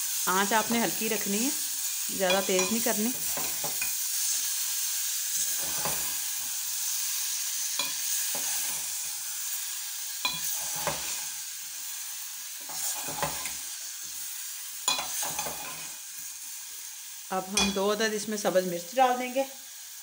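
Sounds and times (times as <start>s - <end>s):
food sizzling in hot oil: 0.0s - 20.0s
spoon scraping and knocking pot: 2.2s - 4.0s, 5.4s - 6.2s, 10.2s - 11.2s, 12.7s - 13.6s, 14.9s - 15.9s, 17.6s - 17.8s.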